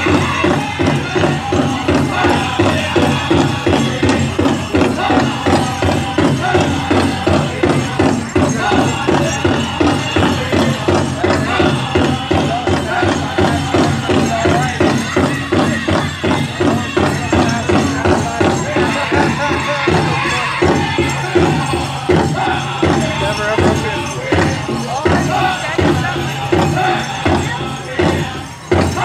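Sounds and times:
big drum fast beat: 0:00.0 - 0:29.0
drum group singing: 0:00.0 - 0:29.0
jingling bells: 0:00.0 - 0:29.0.

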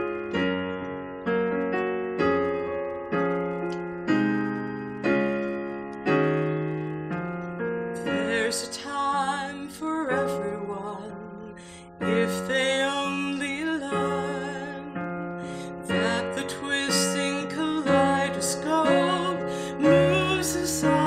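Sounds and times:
piano ballad chords: 0:00.0 - 0:21.0
woman singing with vibrato: 0:08.0 - 0:21.0.

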